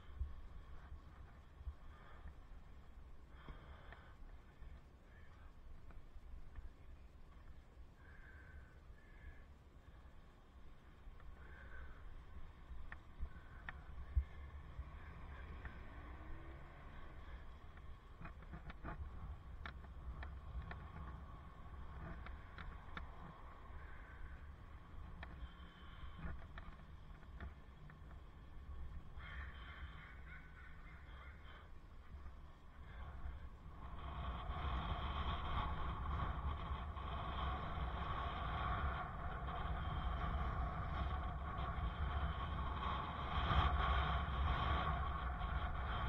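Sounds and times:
wind rumbling on microphone: 0:00.0 - 0:46.0.

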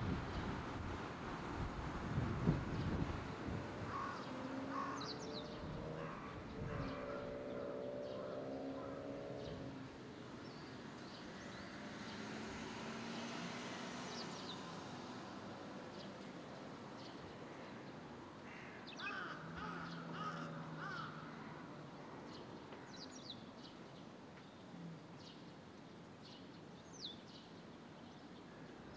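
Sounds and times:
faint outdoor hiss: 0:00.0 - 0:28.9
crow cawing: 0:03.9 - 0:05.1, 0:06.0 - 0:07.2, 0:18.5 - 0:21.6.

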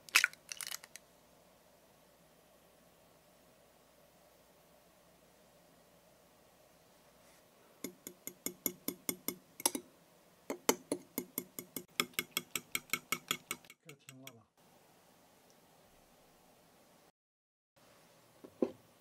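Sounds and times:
fork beating eggs in glass bowl: 0:07.8 - 0:09.8, 0:10.5 - 0:14.4.

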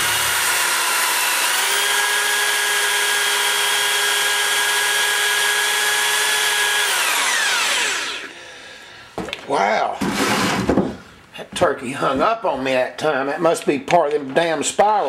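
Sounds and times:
electric drill whining: 0:00.0 - 0:08.5.

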